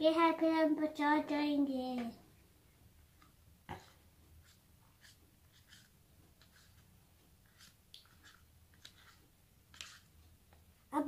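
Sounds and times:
plastic spoon scraping tub: 0:03.7 - 0:10.2.

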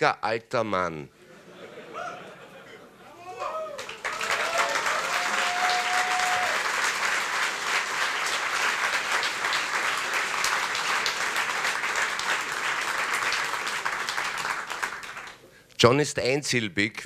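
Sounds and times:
audience applauding: 0:03.5 - 0:15.4.

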